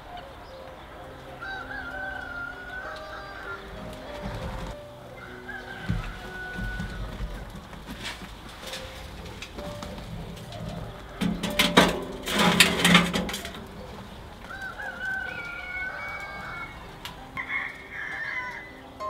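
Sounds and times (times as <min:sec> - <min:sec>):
rooster crowing: 0:01.0 - 0:07.5, 0:14.4 - 0:18.9
metal clanking on grill grate: 0:07.8 - 0:15.1.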